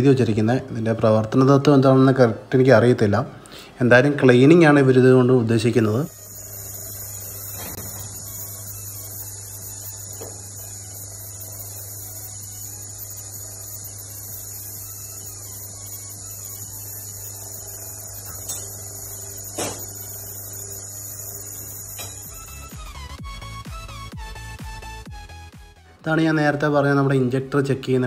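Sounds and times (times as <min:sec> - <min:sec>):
electrical hum: 0:00.0 - 0:28.0
faint high whine: 0:03.6 - 0:25.0.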